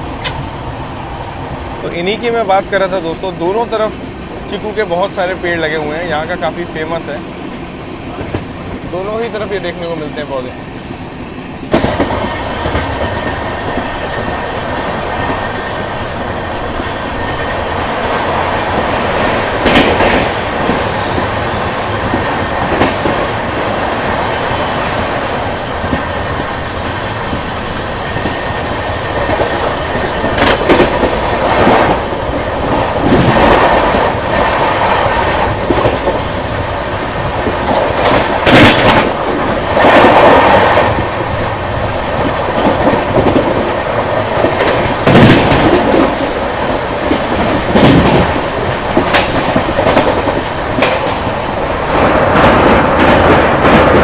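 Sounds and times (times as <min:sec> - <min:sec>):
train wheel rumble: 0:00.0 - 0:54.0.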